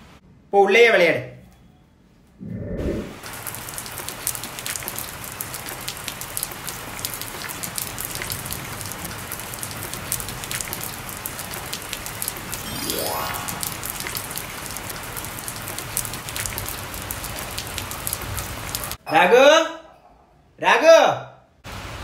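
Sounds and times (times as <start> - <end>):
steady rain falling: 3.2 - 19.0, 21.7 - 22.0.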